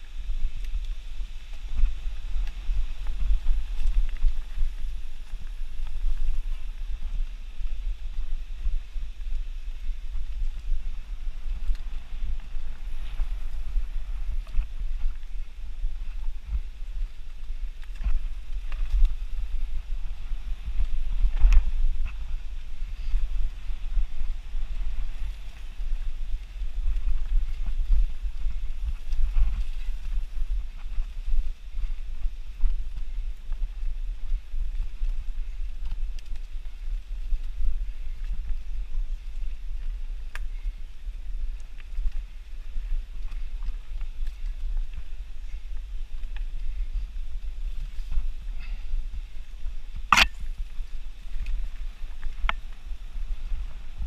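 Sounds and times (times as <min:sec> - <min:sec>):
bike tyres rumbling on dirt: 0:00.0 - 0:54.0
wind buffeting microphone: 0:00.0 - 0:54.0.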